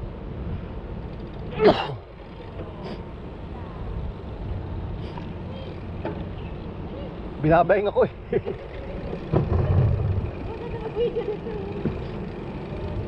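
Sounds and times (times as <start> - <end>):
wind and traffic rumble: 0.0 - 13.0.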